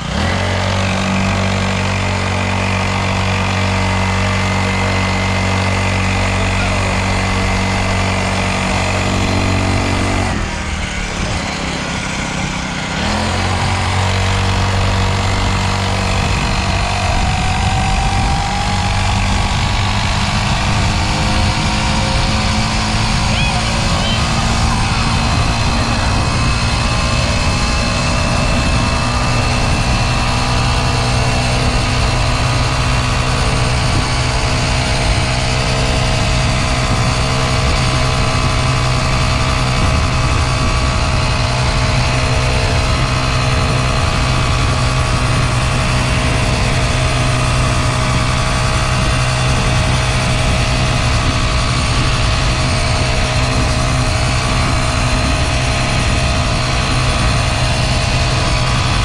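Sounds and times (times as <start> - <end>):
motorcycle engine running steadily: 0.0 - 59.0.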